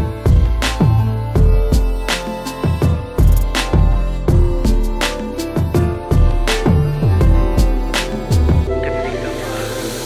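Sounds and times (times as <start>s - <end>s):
sustained instrumental notes: 4.3s - 10.0s.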